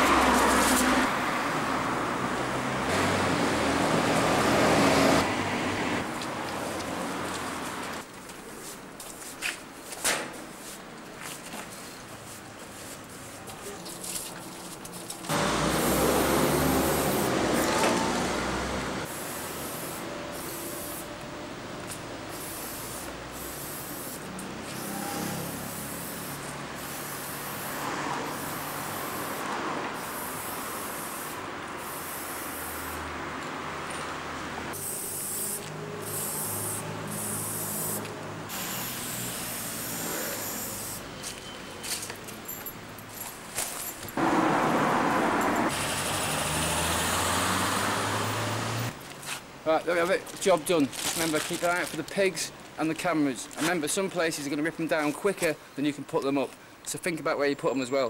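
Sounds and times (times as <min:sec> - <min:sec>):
spray-paint can hissing: 0:15.6 - 0:17.7, 0:19.1 - 0:21.1, 0:22.3 - 0:33.0, 0:34.7 - 0:41.0
loud rushing noise: 0:44.2 - 0:49.0.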